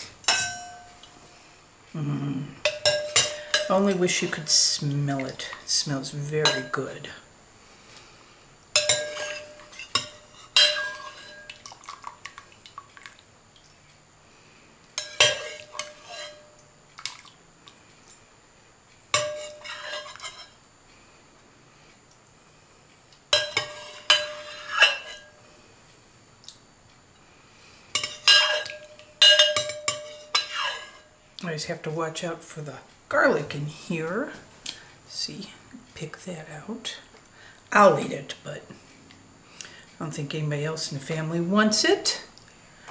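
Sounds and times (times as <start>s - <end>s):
metal spoon clinking on stoneware: 0.3s - 1.0s, 2.7s - 3.9s, 8.8s - 11.6s, 15.0s - 16.5s, 19.2s - 20.5s, 23.3s - 25.4s, 28.0s - 31.0s.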